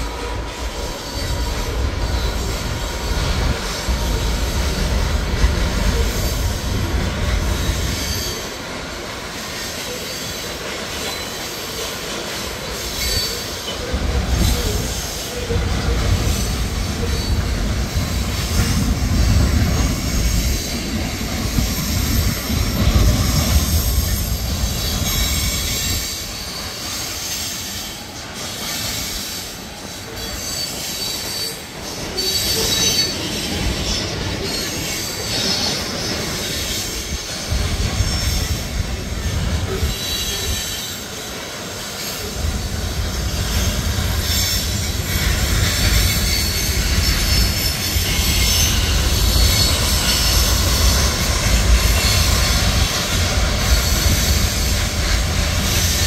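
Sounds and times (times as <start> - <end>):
low train rumble: 0.0 - 56.0
train wheels on rails: 0.0 - 56.0
high-pitched wheel squeals: 30.1 - 38.6.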